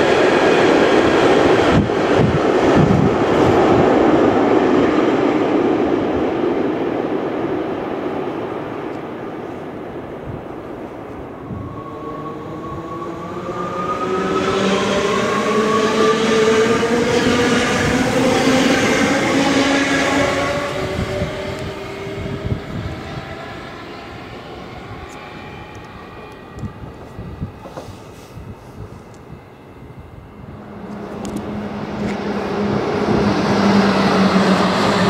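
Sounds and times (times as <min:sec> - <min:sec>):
electric train motors whining: 0:11.5 - 0:35.0.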